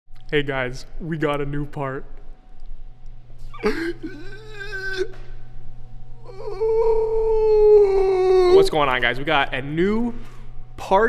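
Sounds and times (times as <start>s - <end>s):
dog crying: 3.5s - 5.2s.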